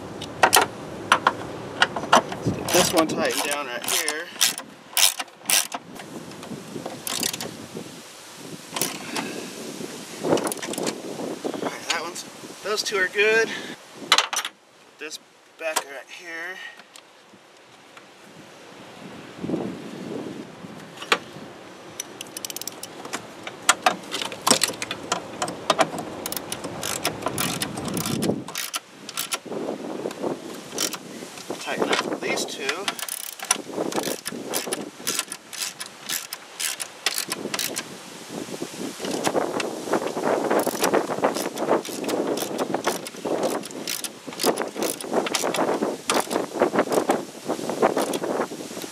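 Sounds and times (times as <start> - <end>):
wind hiss: 0.0 - 48.9
ratchet wrench clicking: 2.7 - 5.8, 7.1 - 7.5, 22.0 - 22.9, 26.2 - 29.4, 30.8 - 31.0, 32.8 - 37.8, 40.6 - 46.4.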